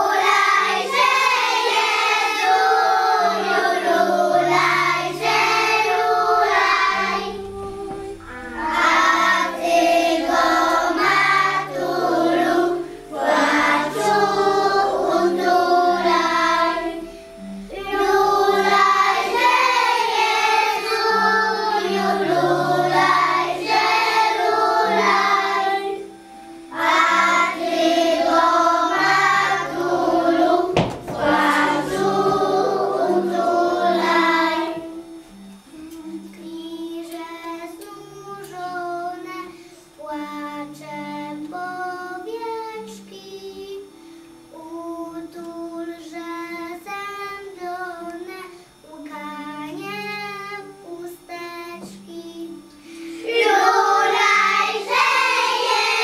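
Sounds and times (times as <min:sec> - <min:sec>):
children singing a carol: 0:00.0 - 0:56.0
musical accompaniment with low notes: 0:00.0 - 0:56.0
quiet melody line: 0:00.0 - 0:56.0
sharp knock: 0:30.8 - 0:31.3.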